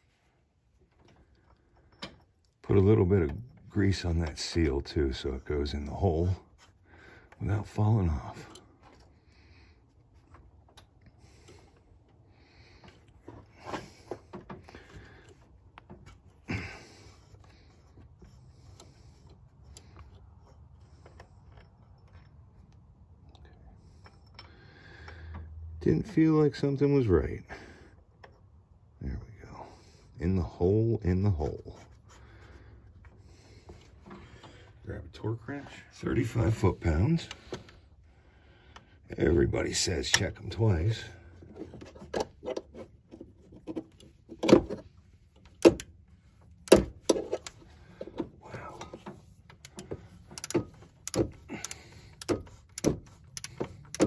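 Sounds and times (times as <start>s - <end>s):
hands handling metal part: 0.0s - 23.2s, 40.1s - 54.0s
low faint hum: 0.0s - 54.0s
faint ratchet ticks: 49.5s - 54.0s
torque wrench clicks: 49.6s - 54.0s.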